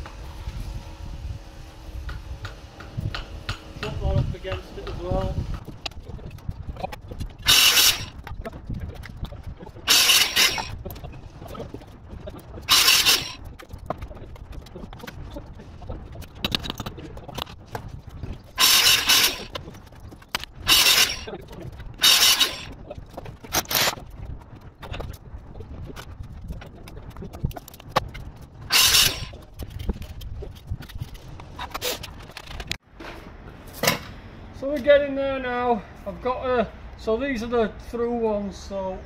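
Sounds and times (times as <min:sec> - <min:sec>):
short harsh scraping: 0:07.4 - 0:08.2, 0:09.8 - 0:10.8, 0:12.6 - 0:13.5, 0:18.6 - 0:19.7, 0:20.6 - 0:21.3, 0:22.0 - 0:22.8, 0:28.7 - 0:29.8.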